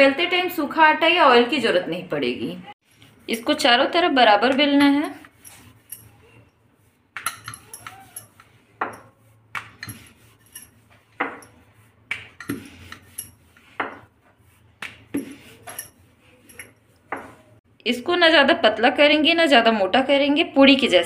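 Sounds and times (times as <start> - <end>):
bangles clinking: 5.2 - 11.7, 12.3 - 13.8, 15.2 - 17.0.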